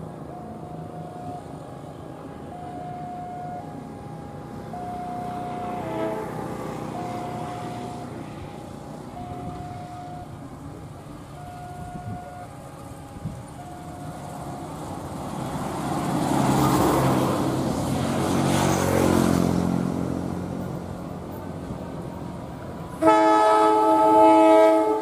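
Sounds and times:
diesel locomotive engine: 0:00.0 - 0:25.0
road traffic: 0:00.0 - 0:25.0.

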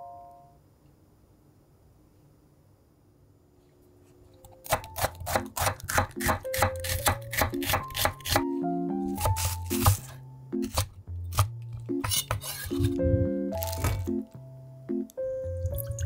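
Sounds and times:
light background music: 0:04.4 - 0:16.0
knife slicing onion on wooden board: 0:04.5 - 0:14.1.

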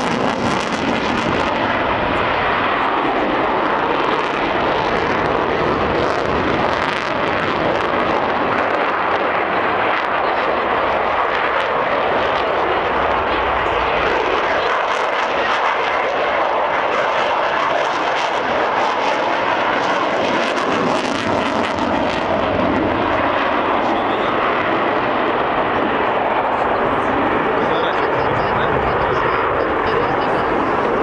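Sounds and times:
fighter jet engine roar: 0:00.0 - 0:31.0.

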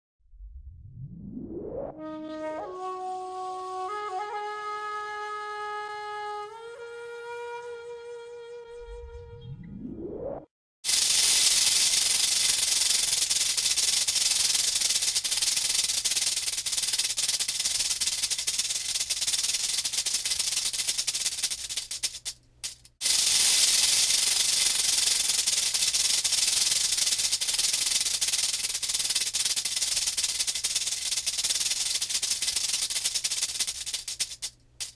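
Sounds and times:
rattlesnake rattling: 0:10.8 - 0:34.9.

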